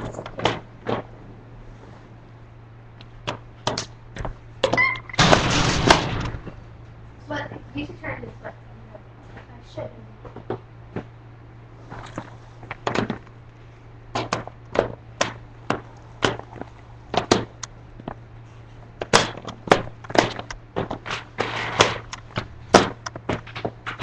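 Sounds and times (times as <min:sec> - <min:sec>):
roller skates clacking on concrete: 0:00.0 - 0:01.1, 0:14.1 - 0:18.2, 0:18.9 - 0:24.0
steady low hum: 0:00.0 - 0:24.0.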